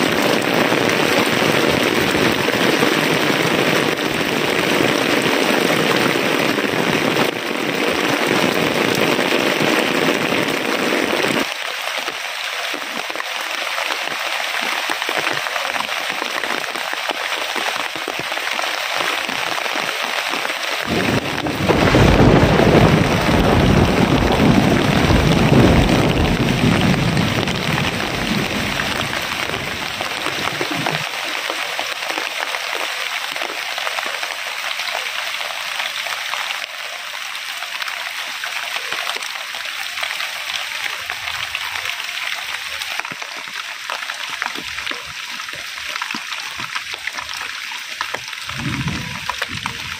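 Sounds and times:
heavy rain pouring: 0.0s - 49.9s
deep low rumble: 48.4s - 49.9s.

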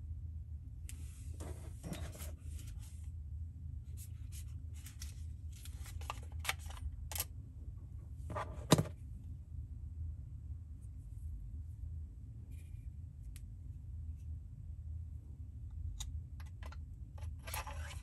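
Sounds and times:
plastic case handling noise: 4.8s - 7.2s, 8.3s - 9.0s.

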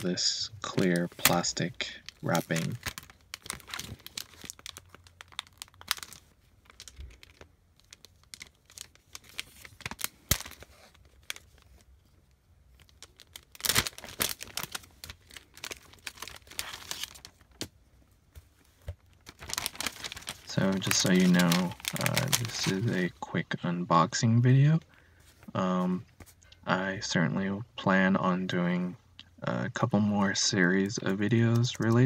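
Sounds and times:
plastic film crackling: 0.6s - 17.7s, 18.7s - 23.3s.

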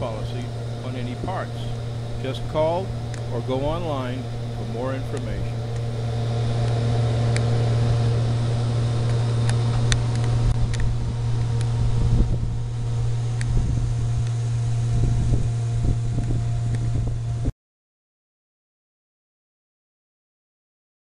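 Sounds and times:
faint tones: 0.0s - 17.5s
machine droning: 0.0s - 17.5s.

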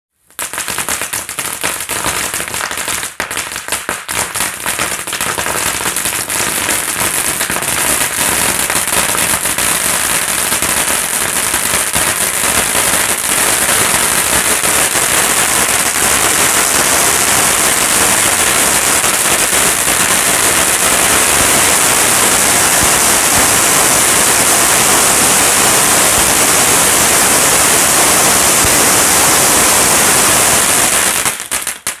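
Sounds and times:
firework fountain crackling: 0.2s - 32.0s
firework hiss: 3.9s - 32.0s.

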